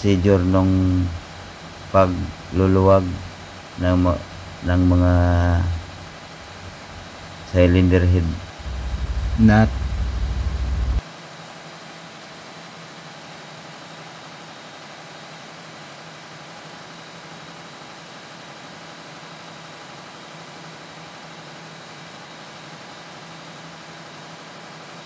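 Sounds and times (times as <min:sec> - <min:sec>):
faint high whine: 0:00.0 - 0:11.0
engine room machinery hum: 0:00.0 - 0:25.0.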